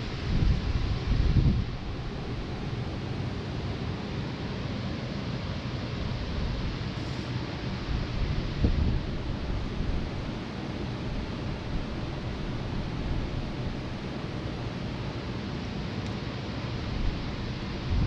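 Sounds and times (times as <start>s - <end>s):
wind buffeting microphone: 0.0s - 2.8s, 7.8s - 14.1s, 16.9s - 18.0s
electric fans rushing air: 0.0s - 18.0s.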